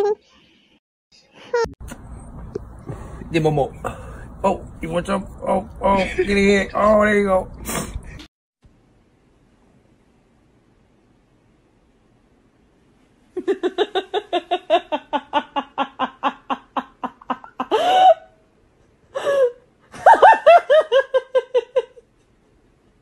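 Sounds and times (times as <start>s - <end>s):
woman laughing hard: 13.4s - 18.3s, 19.2s - 22.0s.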